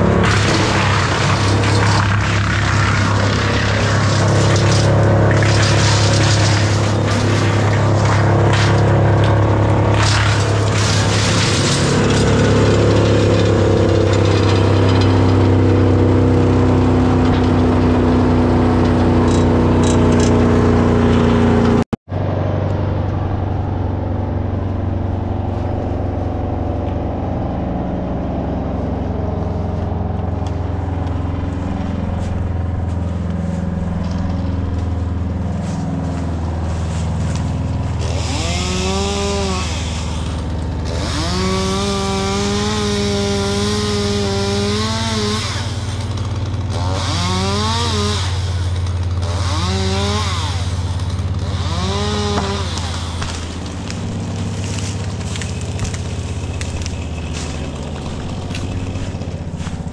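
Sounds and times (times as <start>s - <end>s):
chainsaw revving and cutting: 0.0s - 21.8s, 28.5s - 59.9s
low engine drone: 0.0s - 42.7s, 50.3s - 59.9s.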